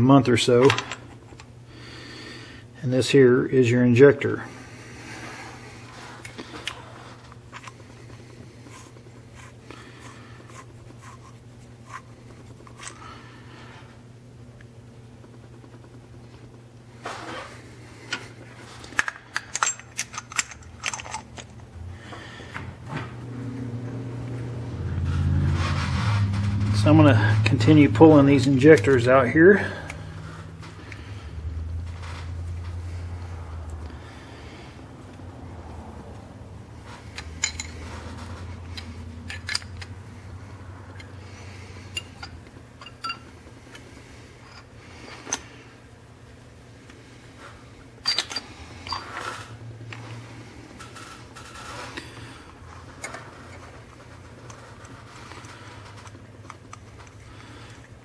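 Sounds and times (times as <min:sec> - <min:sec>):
steady low hum: 0:00.0 - 0:58.0
metal tools clinking: 0:19.0 - 0:21.5, 0:37.2 - 0:38.2, 0:41.9 - 0:43.3, 0:48.0 - 0:49.4.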